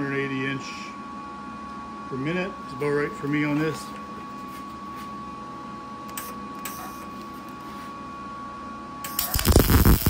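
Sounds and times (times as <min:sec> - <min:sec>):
welder arc crackling: 0:09.1 - 0:10.0.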